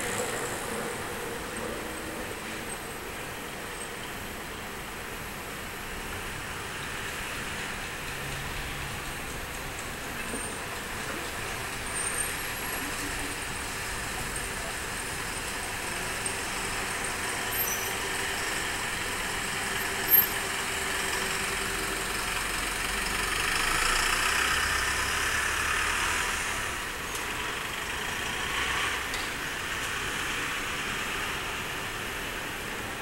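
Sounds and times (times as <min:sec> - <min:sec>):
street traffic: 0:00.0 - 0:33.0
truck driving past: 0:20.5 - 0:31.6.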